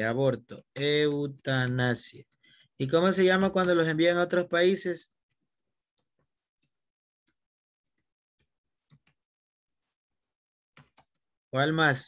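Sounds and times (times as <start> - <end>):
typing on a computer keyboard: 0.4 - 4.2, 5.1 - 6.7, 10.8 - 11.2.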